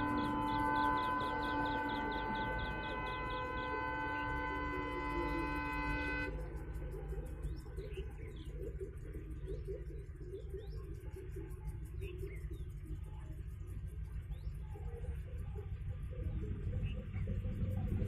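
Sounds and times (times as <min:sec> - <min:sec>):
locomotive horn: 0:00.0 - 0:07.0
birds chirping: 0:00.0 - 0:18.0
diesel locomotive engine rumble: 0:00.0 - 0:18.0.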